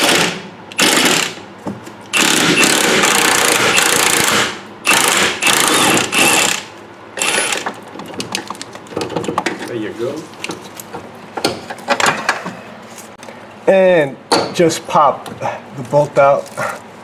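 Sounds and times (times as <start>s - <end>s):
power ratchet spinning: 0.0s - 1.4s, 2.1s - 7.7s.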